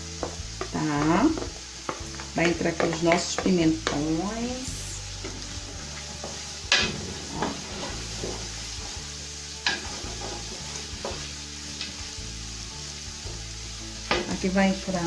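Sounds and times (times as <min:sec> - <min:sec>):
vegetables sizzling in oil: 0:00.0 - 0:15.0
wooden spoon stirring: 0:00.2 - 0:09.0.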